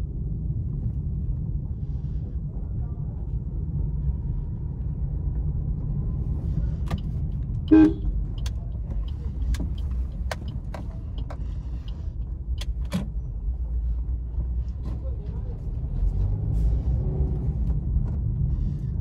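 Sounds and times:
car engine and road rumble: 0.0s - 19.0s
car horn beep: 7.7s - 8.1s
sharp clicks and light knocks: 8.3s - 13.2s.

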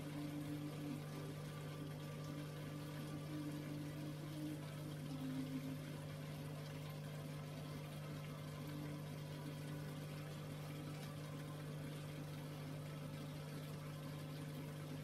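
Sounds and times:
aquarium pump humming: 0.0s - 15.0s.

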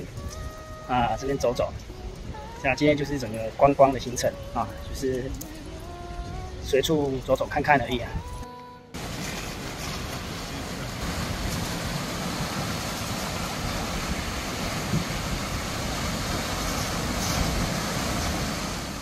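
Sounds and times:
wind buffeting microphone: 0.0s - 8.4s, 9.0s - 19.0s
sea surf breaking on rocks: 9.0s - 19.0s.

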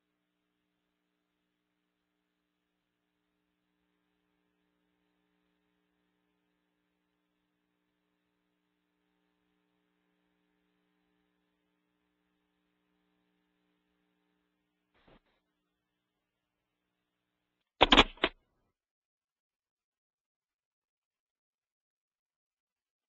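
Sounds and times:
brief click: 17.8s - 18.4s.

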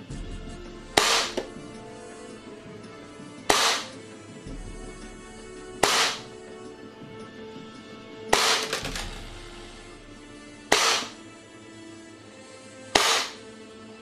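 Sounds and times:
airsoft pistol shots: 1.0s - 1.5s, 3.5s - 3.9s, 5.8s - 6.3s, 8.4s - 9.0s, 10.7s - 11.2s, 13.0s - 13.4s.

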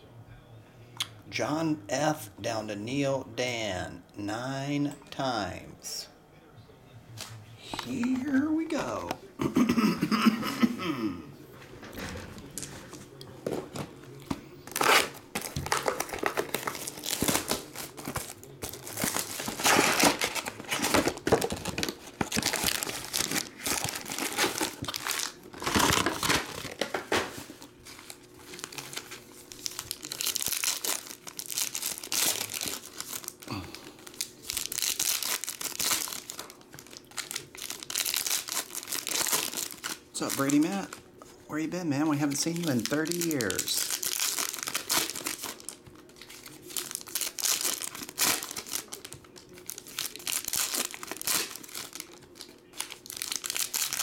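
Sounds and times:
foil wrappers crinkling and tearing: 12.5s - 41.4s, 42.0s - 54.0s.

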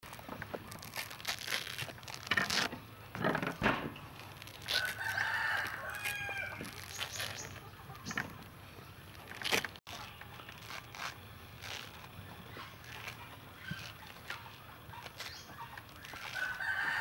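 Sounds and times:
fruit pith tearing by hand: 0.0s - 17.0s
rooster crowing: 4.7s - 6.7s, 16.3s - 17.0s.

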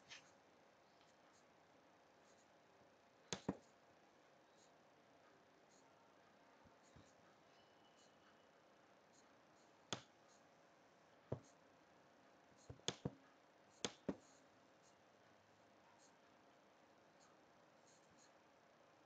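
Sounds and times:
computer mouse button clicking: 3.4s - 3.6s, 13.8s - 14.2s.

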